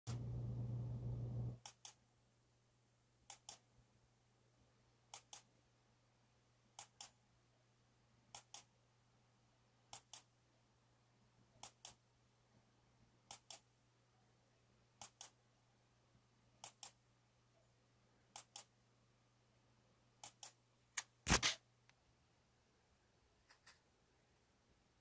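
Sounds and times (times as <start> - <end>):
faint low hum: 0.1 - 25.0.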